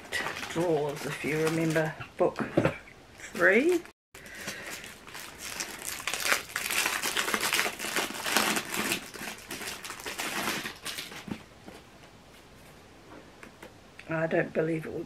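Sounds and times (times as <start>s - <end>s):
wrapping crinkling: 0.0s - 2.0s, 3.2s - 11.4s.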